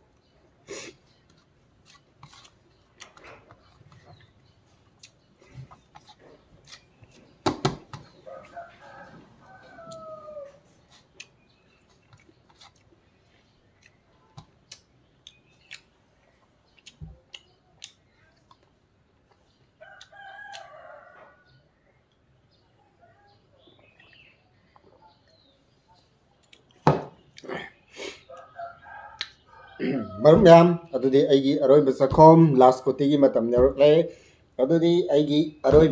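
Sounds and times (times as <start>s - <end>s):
rooster crowing: 8.2s - 10.6s, 28.3s - 30.5s.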